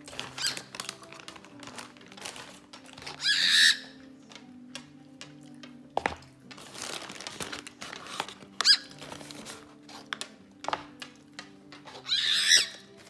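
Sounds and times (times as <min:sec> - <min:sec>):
background music: 0:00.0 - 0:13.0
cockatiel calling and screeching: 0:00.3 - 0:00.7, 0:03.1 - 0:04.0, 0:08.6 - 0:09.0, 0:12.0 - 0:12.9.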